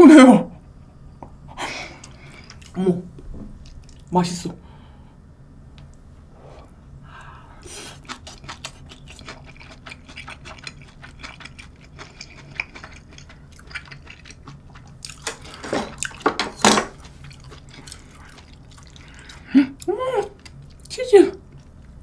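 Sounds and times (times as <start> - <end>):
wet chewing and slurping: 2.0 - 2.8, 7.6 - 22.0.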